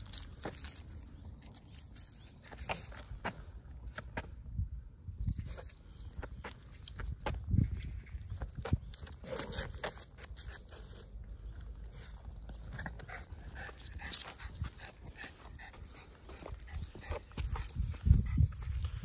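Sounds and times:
dog panting: 0:12.5 - 0:19.0.

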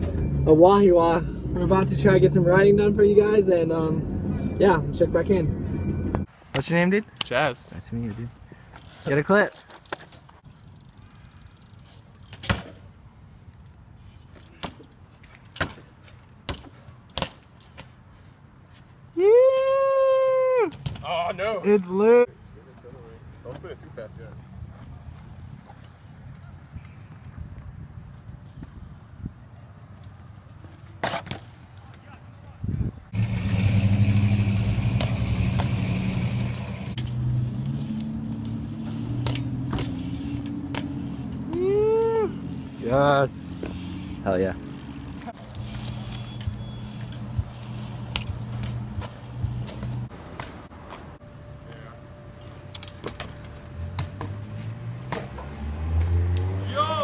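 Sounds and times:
bike clicks and knocks: 0:08.7 - 0:10.5, 0:11.6 - 0:12.9, 0:14.3 - 0:18.0, 0:30.0 - 0:32.1, 0:37.0 - 0:42.2, 0:43.5 - 0:51.0, 0:52.6 - 0:56.5
engine humming: 0:33.1 - 0:57.0.

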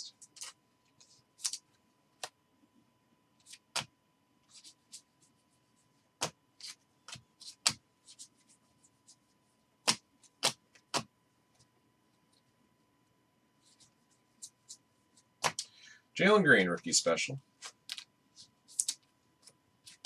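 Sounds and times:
trading cards flicked and slid: 0:03.4 - 0:03.9.

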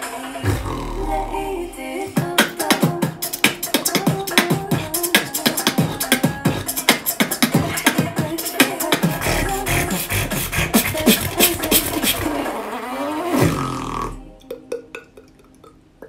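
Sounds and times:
man beatboxing: 0:00.0 - 0:12.6.

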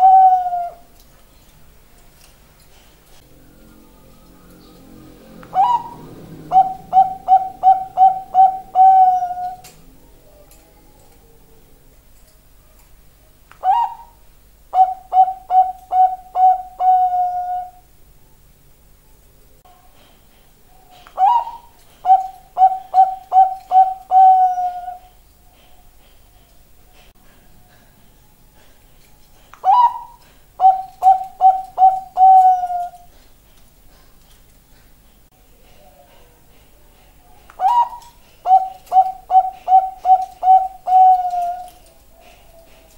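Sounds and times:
dove cooing: 0:00.0 - 0:00.9, 0:03.2 - 0:11.8, 0:13.6 - 0:17.9, 0:20.9 - 0:25.7, 0:29.4 - 0:33.2, 0:37.6 - 0:42.9.

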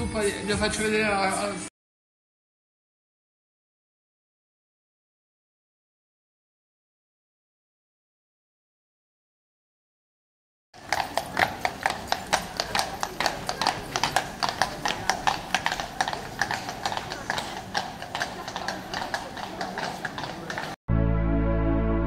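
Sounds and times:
horse hooves clip-clopping on stone: 0:10.8 - 0:20.8.

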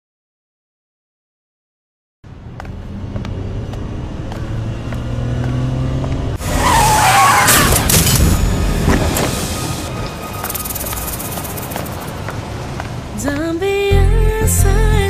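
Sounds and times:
car engine speeding up: 0:02.4 - 0:08.5
tyre screech: 0:06.4 - 0:12.2.

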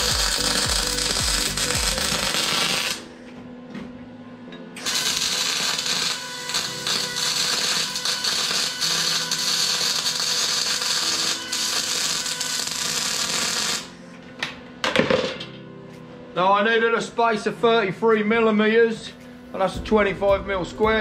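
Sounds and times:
welding arc crackling and hissing: 0:00.0 - 0:03.1, 0:04.8 - 0:14.0.

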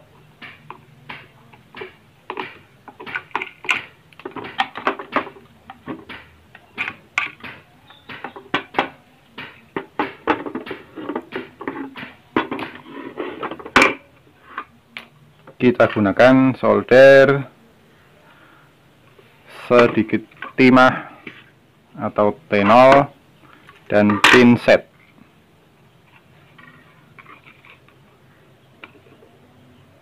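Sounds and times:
plastic housing clicks and knocks: 0:00.4 - 0:12.8.

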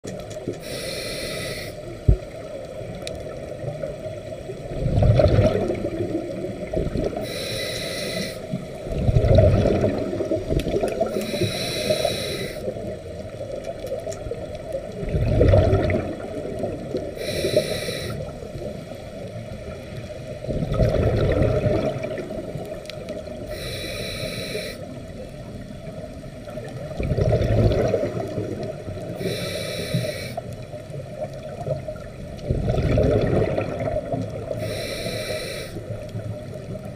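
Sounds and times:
exhaled air bubbling underwater: 0:00.0 - 0:36.9
regulator hissing inhale: 0:00.6 - 0:02.1, 0:07.2 - 0:08.8, 0:11.0 - 0:12.9, 0:17.1 - 0:18.7, 0:23.3 - 0:25.2, 0:29.1 - 0:30.6, 0:34.5 - 0:36.0.

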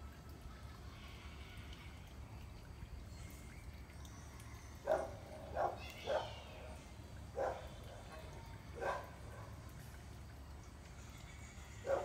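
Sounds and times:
dog barking: 0:04.9 - 0:06.3, 0:07.4 - 0:07.7, 0:08.8 - 0:09.6.

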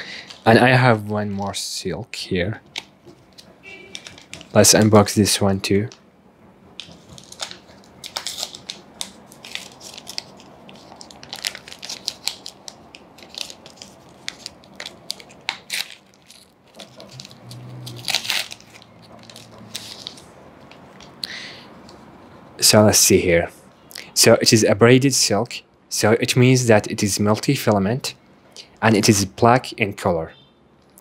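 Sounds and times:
wrapper crinkling and tearing: 0:02.8 - 0:04.9, 0:06.8 - 0:21.2.

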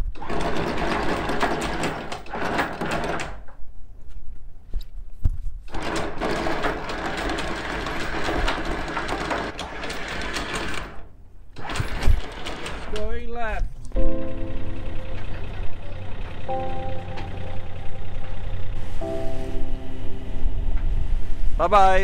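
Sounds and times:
anchor windlass hauling chain: 0:00.0 - 0:03.6, 0:05.7 - 0:13.9.

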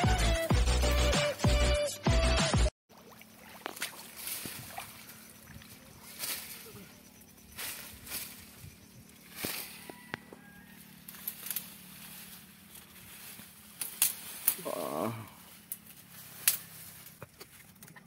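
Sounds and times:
leaves and branches rustling: 0:03.2 - 0:18.0.

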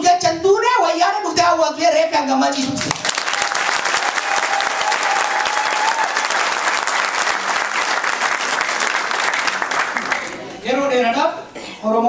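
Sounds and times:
audience applauding: 0:02.8 - 0:10.5.

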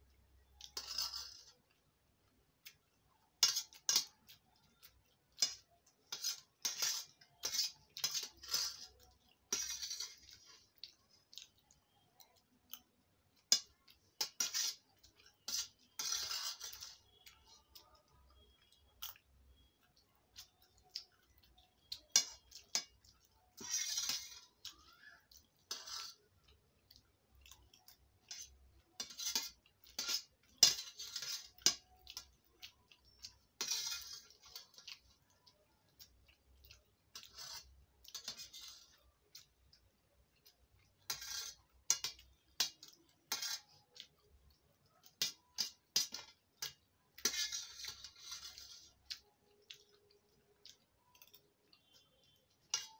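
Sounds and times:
chewing: 0:24.5 - 0:30.6, 0:34.4 - 0:38.2, 0:48.3 - 0:52.7
spoons clinking on steel plate: 0:27.7 - 0:35.0, 0:52.6 - 0:52.9.

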